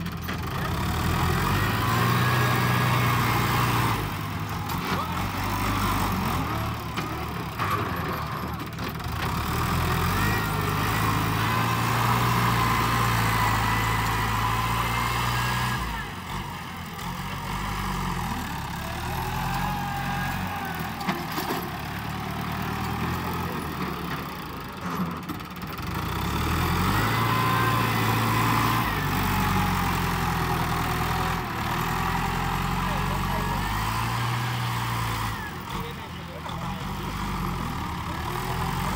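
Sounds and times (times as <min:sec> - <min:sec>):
tractor diesel engine running: 0:00.0 - 0:38.9.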